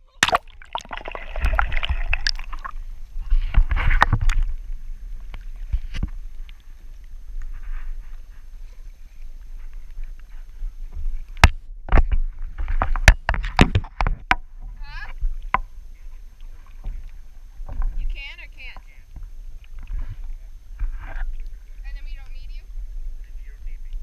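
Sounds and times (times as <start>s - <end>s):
kayak paddle splashing in water: 0.0s - 7.1s.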